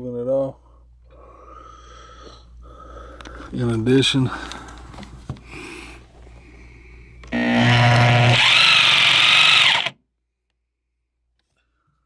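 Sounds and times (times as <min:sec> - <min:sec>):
reciprocating saw motor whining: 0:07.3 - 0:10.0.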